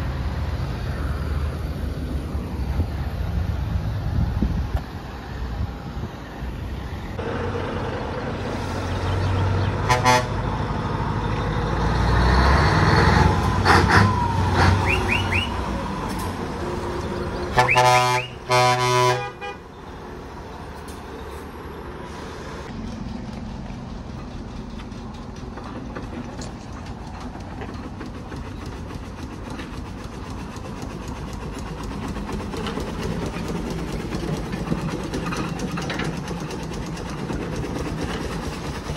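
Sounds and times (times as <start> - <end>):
lorries driving past: 0.0 - 38.9
lorry air horn blasts: 9.9 - 10.4, 17.6 - 19.6
steam traction engine beat: 13.3 - 19.5, 26.8 - 38.9.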